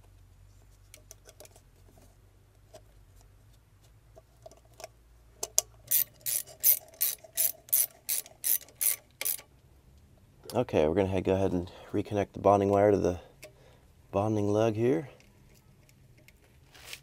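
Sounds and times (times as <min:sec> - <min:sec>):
ratchet wrench clicking: 0:05.8 - 0:09.5.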